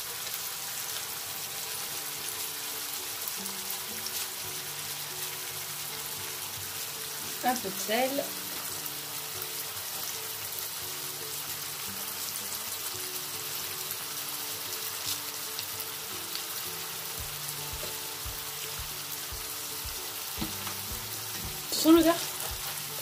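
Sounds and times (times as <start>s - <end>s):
background music sustained notes: 0.0s - 23.0s
food sizzling in a frying pan: 0.0s - 23.0s
low regular beat: 17.2s - 21.7s.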